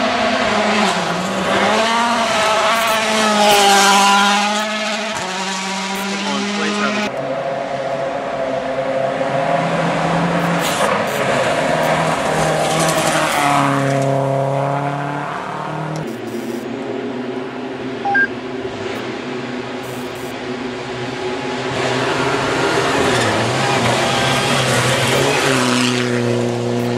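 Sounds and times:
distant rally car engines revving: 0.0 - 26.9.

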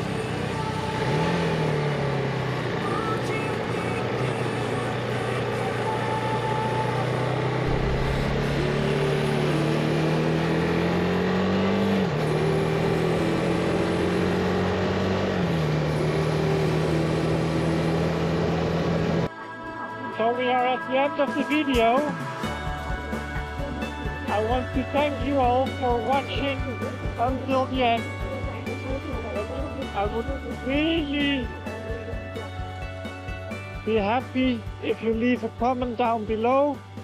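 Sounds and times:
motorcycle engine accelerating: 0.0 - 19.3, 22.8 - 33.9
wind noise: 7.6 - 9.9.

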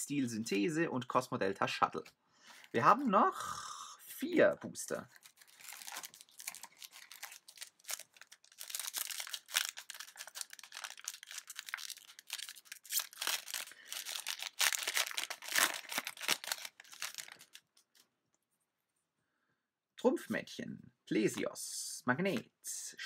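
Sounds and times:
foil wrapper tearing and crinkling: 5.2 - 17.8.

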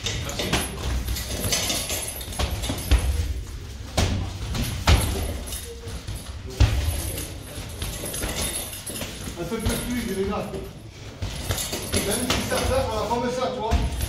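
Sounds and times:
gloves and shin guards thudding: 0.0 - 10.6, 13.6 - 14.0.

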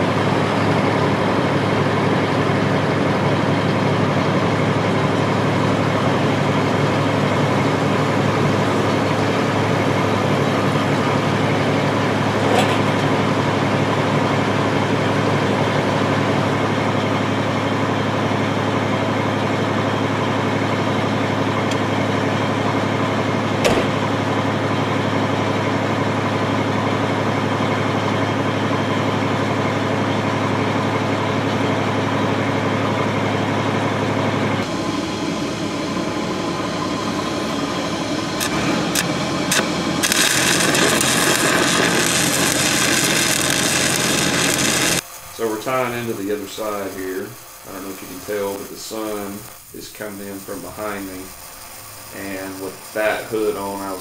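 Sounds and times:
diesel engine idling: 0.0 - 45.0.

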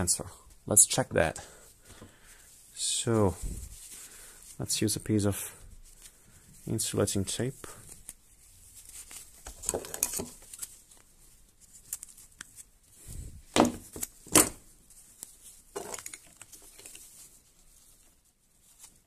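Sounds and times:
rustles clicks and knocks: 9.4 - 10.7, 15.7 - 17.1.

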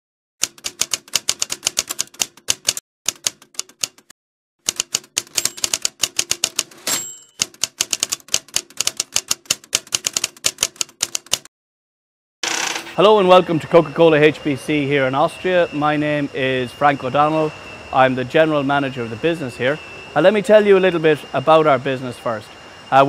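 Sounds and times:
typewriter keystrokes: 0.4 - 4.1, 4.7 - 11.5
carriage return bell: 5.3 - 5.8, 6.9 - 7.4.

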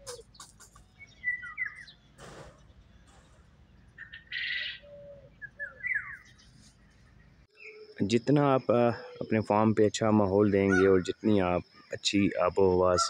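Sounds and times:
harsh rasping bird call: 0.0 - 2.6, 4.0 - 6.3, 10.6 - 11.2
birds chirping: 0.0 - 13.0.

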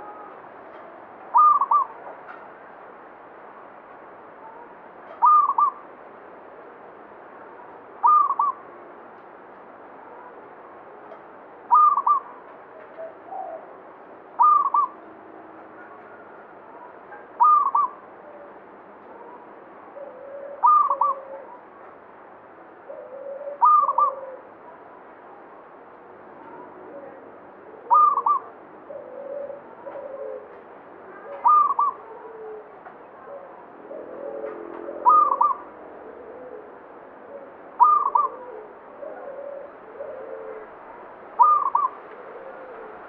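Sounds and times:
dove cooing: 1.3 - 2.0, 5.2 - 5.8, 8.0 - 8.6, 11.7 - 12.3, 14.4 - 15.0, 17.1 - 18.0, 20.0 - 21.6, 22.9 - 24.5, 26.5 - 43.0.

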